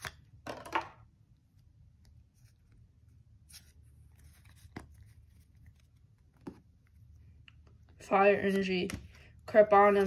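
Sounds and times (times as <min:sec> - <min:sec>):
trading cards rustling: 0:02.1 - 0:07.4, 0:08.2 - 0:10.0.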